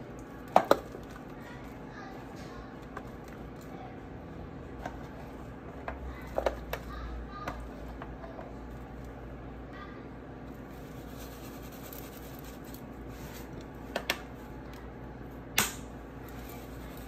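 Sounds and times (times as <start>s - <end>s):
low room hum: 0.0s - 17.0s
plastic cap snap: 15.6s - 15.9s.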